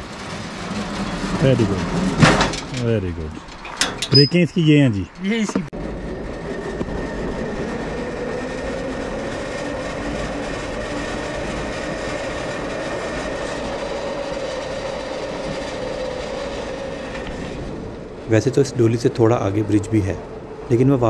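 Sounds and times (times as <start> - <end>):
pulley wheels rolling on cable: 5.8 - 18.6.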